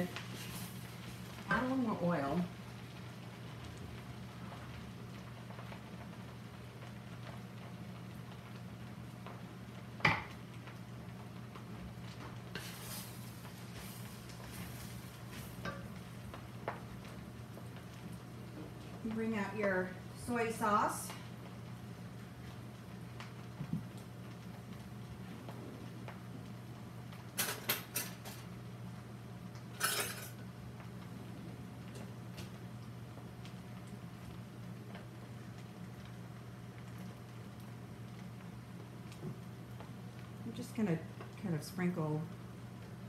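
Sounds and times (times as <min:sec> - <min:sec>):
faint sizzle: 0:00.0 - 0:43.0
wooden spatula stirring rice in pan: 0:00.1 - 0:01.9, 0:12.2 - 0:17.8.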